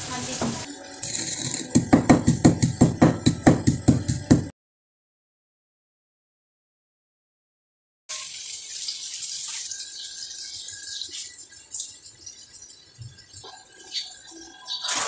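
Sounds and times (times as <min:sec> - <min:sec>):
onions sizzling in hot oil: 0:00.0 - 0:01.7, 0:08.1 - 0:13.3.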